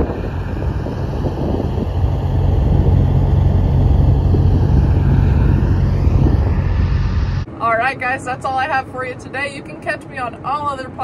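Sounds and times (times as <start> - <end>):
trucks driving past: 0.0 - 7.5
diesel engines and tyres rumbling: 0.0 - 8.7.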